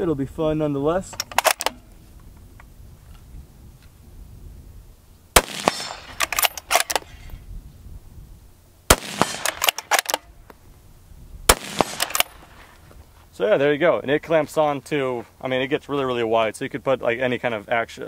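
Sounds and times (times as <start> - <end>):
rifle bolt clicking: 1.1 - 1.9, 5.6 - 7.1, 9.3 - 10.3, 11.8 - 12.4
rifle shot crack: 5.4 - 7.2, 8.9 - 10.3, 11.5 - 12.6.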